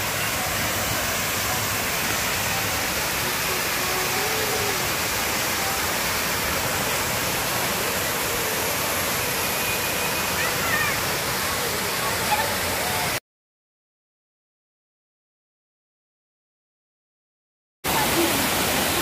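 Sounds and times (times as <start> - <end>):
waterfall over rocks: 0.0 - 13.2, 17.9 - 19.0.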